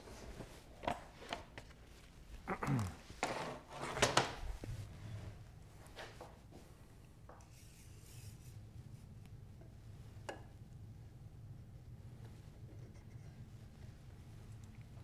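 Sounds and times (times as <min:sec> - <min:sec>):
faint low hum: 0:04.2 - 0:15.0.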